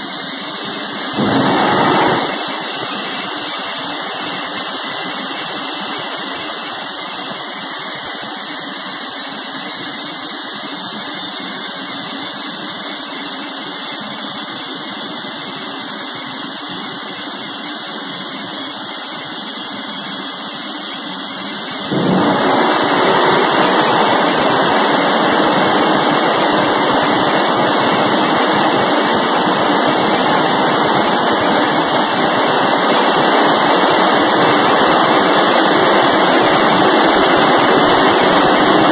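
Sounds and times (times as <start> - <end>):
jet engine whine: 0.0 - 38.9
afterburner roar: 0.6 - 3.3, 21.7 - 38.9.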